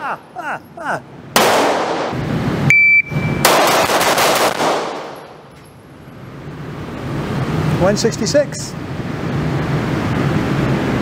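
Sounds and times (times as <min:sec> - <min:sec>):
rapid pistol shots: 0:01.4 - 0:02.2, 0:03.4 - 0:05.4
high electronic beep: 0:02.7 - 0:03.5.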